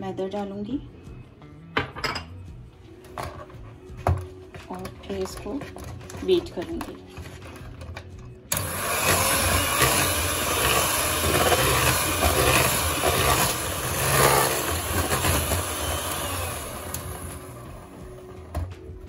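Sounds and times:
electric hand mixer running: 8.5s - 18.7s.

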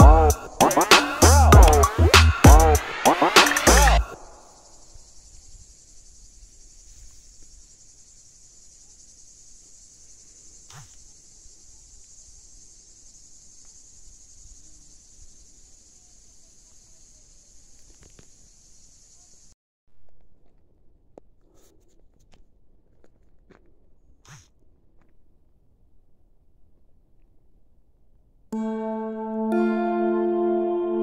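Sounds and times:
insects shrilling: 0.0s - 19.6s.

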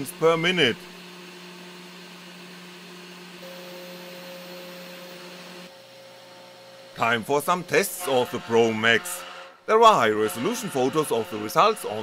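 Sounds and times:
milling motor humming: 0.0s - 9.3s, 10.1s - 12.0s.

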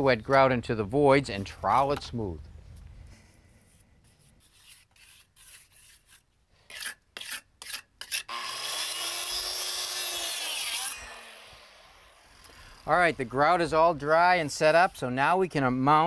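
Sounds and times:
trowel scraping wet grout: 3.7s - 8.3s
circular saw cutting board: 4.4s - 15.0s.

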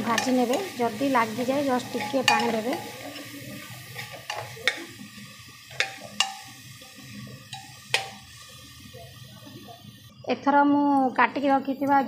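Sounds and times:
frying sizzle: 0.0s - 12.0s
metal ladle clinking on pot: 1.8s - 3.3s.

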